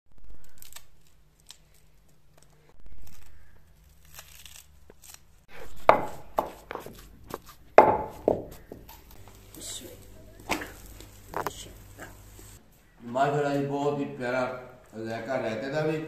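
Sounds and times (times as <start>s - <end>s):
knife slicing chillies: 2.6s - 9.1s
pestle pounding in clay mortar: 5.7s - 9.0s.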